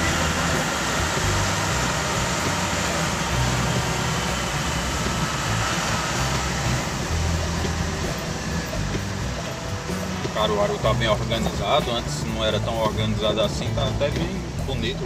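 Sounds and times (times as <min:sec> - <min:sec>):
car engine drone: 0:00.0 - 0:15.0
tyres on wet road: 0:00.0 - 0:15.0.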